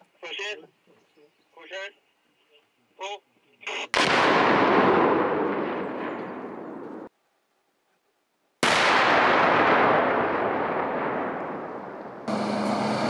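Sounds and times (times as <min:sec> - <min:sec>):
explosion rumbling: 0:04.0 - 0:07.1, 0:08.6 - 0:12.4.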